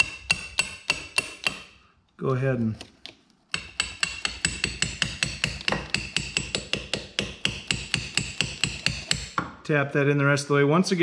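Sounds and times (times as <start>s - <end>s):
hammer tapping metal rod: 0.0s - 1.8s, 3.5s - 9.6s.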